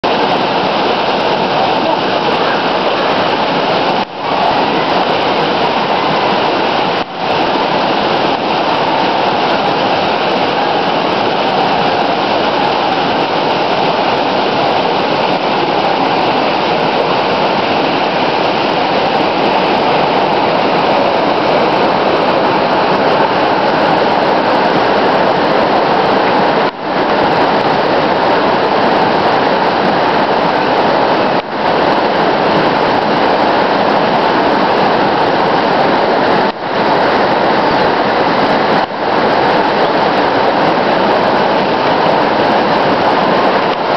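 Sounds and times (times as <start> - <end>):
waterfall rushing onto rock: 0.0 - 43.9.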